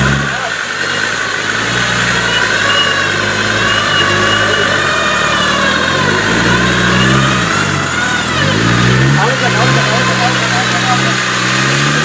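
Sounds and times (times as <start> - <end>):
diesel engine running under load: 0.0 - 12.0
high wavering whine: 1.8 - 11.1.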